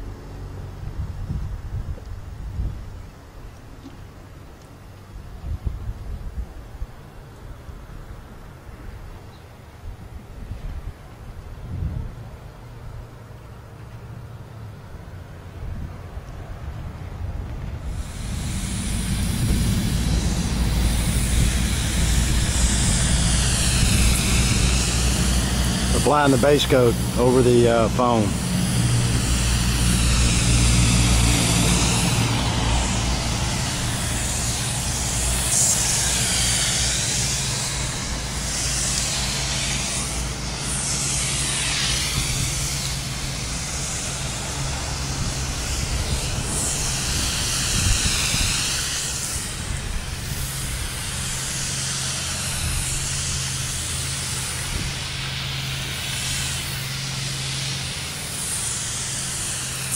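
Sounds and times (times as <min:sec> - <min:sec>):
low mechanical hum: 0:00.0 - 0:59.9
spray gun hissing: 0:17.8 - 0:59.9.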